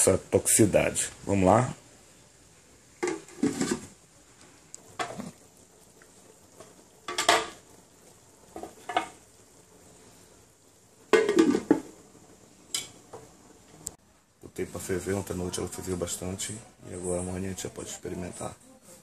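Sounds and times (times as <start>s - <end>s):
metal pot lid clanking: 7.1s - 7.6s, 11.1s - 11.9s.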